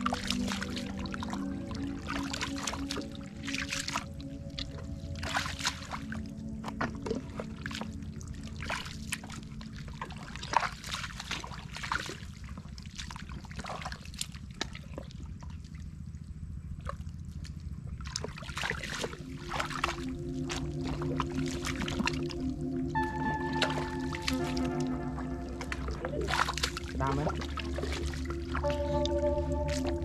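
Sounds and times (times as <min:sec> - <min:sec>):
small splashes of muddy water: 0:00.0 - 0:30.0
boots squelching in mud: 0:18.0 - 0:22.4, 0:25.5 - 0:30.0.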